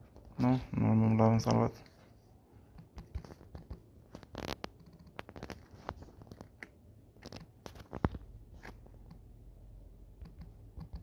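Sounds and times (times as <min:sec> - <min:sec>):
fingertips tapping a touchscreen: 0:02.6 - 0:09.3, 0:10.2 - 0:11.0.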